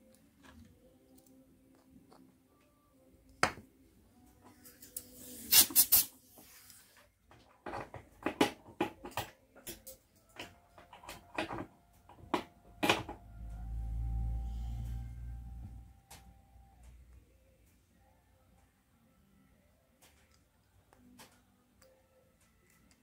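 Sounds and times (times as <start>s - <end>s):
hard objects clicking and knocking: 7.3s - 13.2s.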